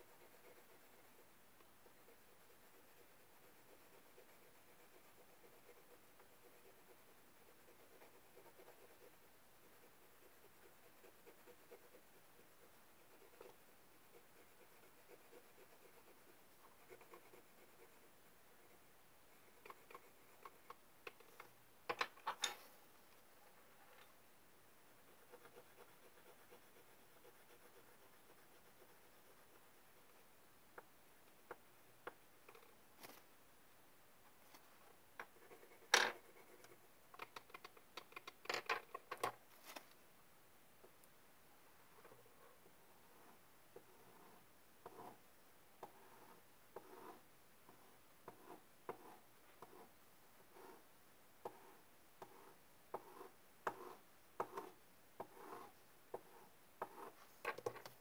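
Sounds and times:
pencil tapping and scratching paper: 0:00.1 - 0:18.1, 0:19.4 - 0:22.5, 0:25.0 - 0:32.6, 0:35.2 - 0:39.4, 0:43.8 - 0:45.2, 0:45.8 - 0:49.9, 0:51.4 - 0:58.0
markers tapping on paper and desk: 0:35.2 - 0:39.4, 0:51.4 - 0:55.6, 0:56.2 - 0:58.0.

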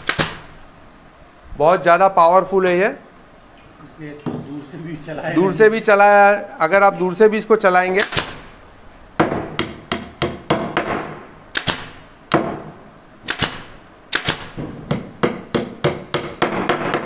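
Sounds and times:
hammer striking nails into wood: 0:00.0 - 0:00.5, 0:08.0 - 0:08.5, 0:09.2 - 0:17.0.

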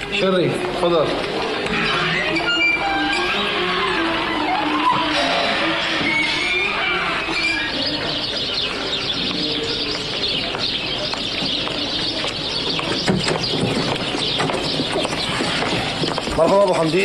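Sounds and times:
birds chirping: 0:00.0 - 0:17.0
outdoor background noise: 0:00.0 - 0:17.0
birds cooing: 0:06.0 - 0:17.0.

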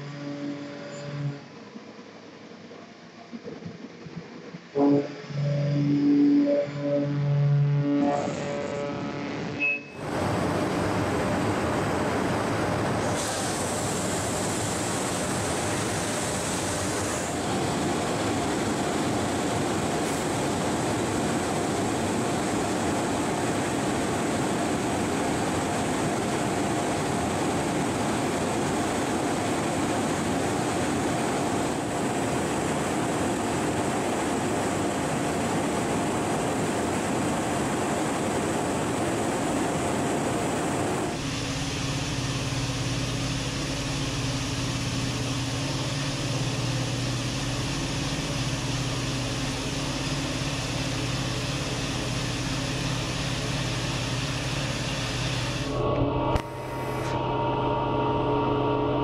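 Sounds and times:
steady machine whine: 0:00.0 - 0:59.0
machine cutting metal: 0:04.8 - 0:09.6
coolant spray: 0:13.0 - 0:17.4.

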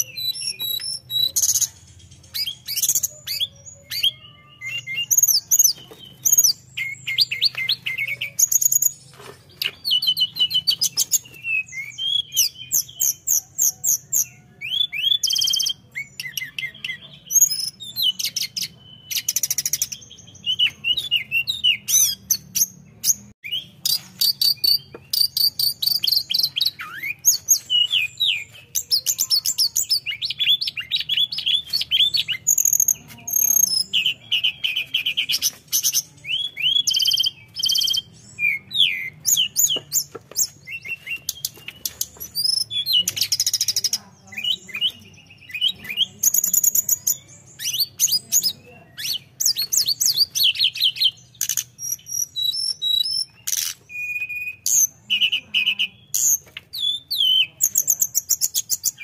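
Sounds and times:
bird singing whistles and trills: 0:00.0 - 0:09.0, 0:09.6 - 0:59.0.

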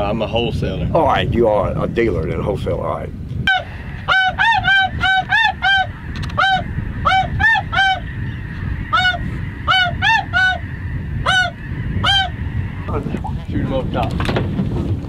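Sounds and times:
low rumble: 0:00.0 - 0:15.0
geese honking: 0:03.5 - 0:13.7.

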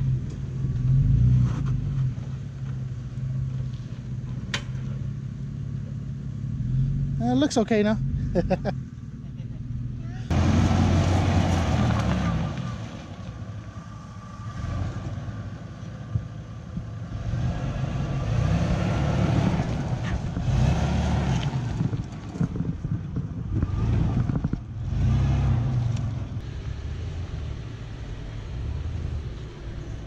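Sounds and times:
suv engine revving: 0:06.3 - 0:30.0.

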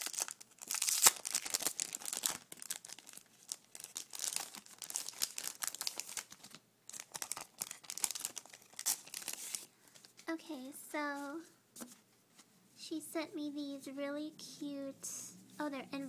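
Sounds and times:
packaging tearing: 0:00.0 - 0:09.7
packaging crinkling: 0:00.0 - 0:10.1.

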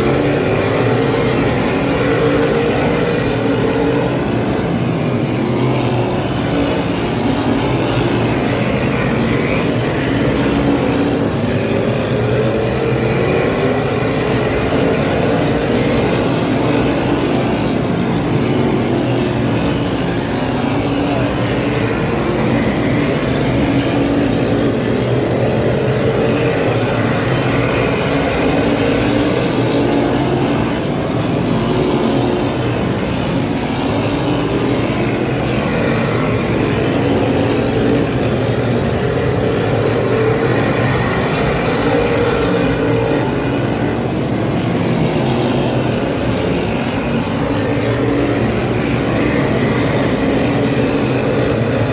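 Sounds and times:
race car engines droning: 0:00.0 - 0:51.9.

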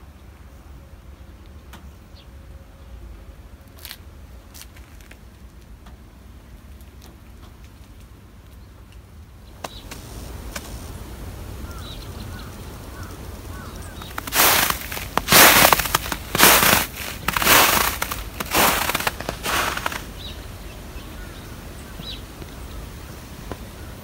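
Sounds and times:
bird chirps: 0:11.6 - 0:14.8.

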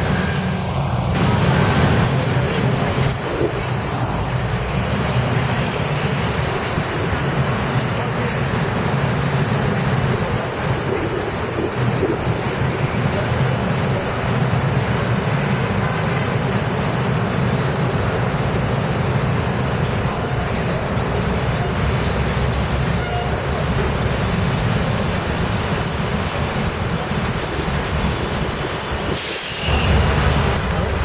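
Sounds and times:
bus diesel engine passing: 0:00.0 - 0:31.0
city traffic noise: 0:00.0 - 0:31.0
short hiss: 0:29.2 - 0:29.9.

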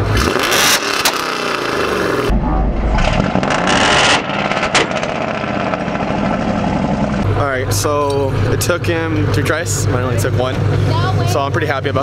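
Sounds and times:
car engine revving: 0:00.0 - 0:12.0
sharp exhaust pops: 0:03.0 - 0:07.3.

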